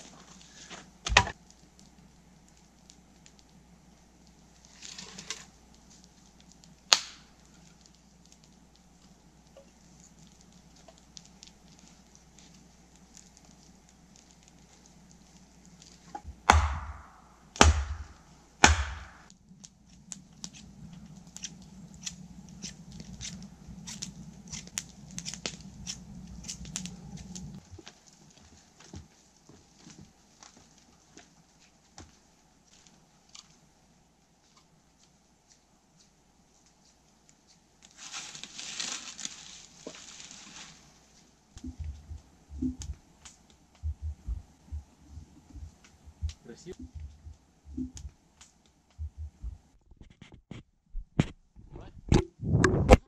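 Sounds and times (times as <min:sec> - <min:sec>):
heavy blows on wood: 0:16.1 - 0:19.3, 0:41.6 - 0:43.0, 0:43.8 - 0:48.1, 0:49.0 - 0:49.7.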